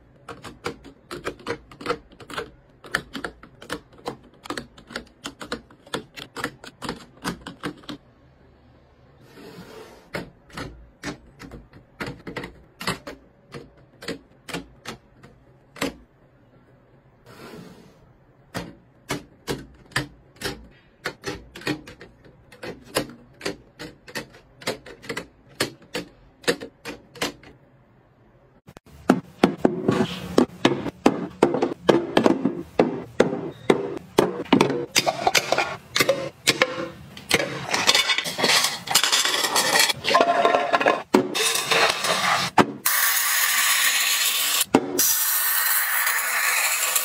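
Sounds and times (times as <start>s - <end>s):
plastic canisters clattering: 29.0s - 42.8s.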